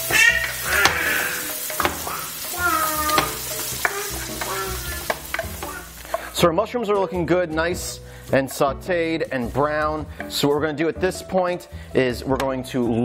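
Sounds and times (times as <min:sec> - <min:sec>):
spatula scraping pan: 0:00.0 - 0:06.4
vegetables sizzling in pan: 0:00.0 - 0:10.5
person calling out: 0:02.0 - 0:05.9.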